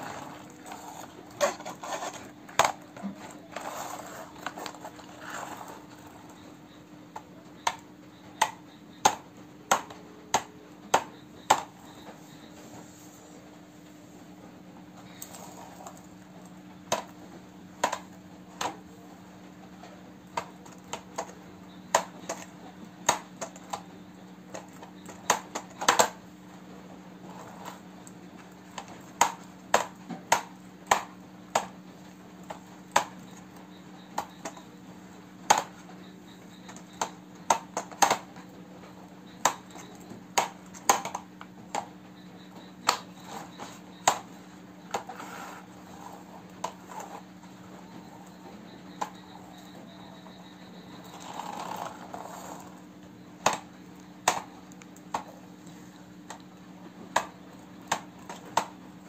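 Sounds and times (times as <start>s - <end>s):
steady low hum: 0.0s - 59.0s
plastic toy truck clicks and taps: 8.4s - 11.7s, 17.8s - 18.8s, 24.5s - 26.2s, 28.8s - 31.8s, 35.5s - 35.8s, 36.6s - 38.3s, 42.8s - 44.3s, 57.2s - 58.8s.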